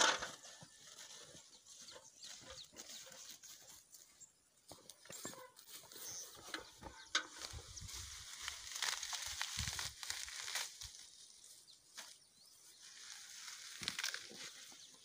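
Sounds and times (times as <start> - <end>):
leafy plant stems rustling: 5.1 - 15.0.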